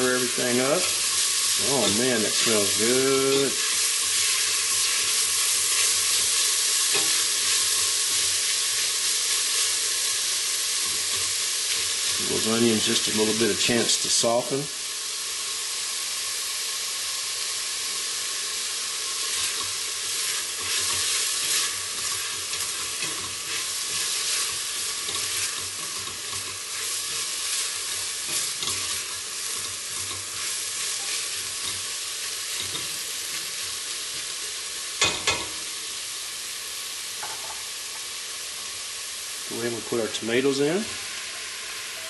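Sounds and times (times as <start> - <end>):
onions sizzling in hot oil: 0.0 - 42.0
spatula scraping a pot: 19.3 - 31.8.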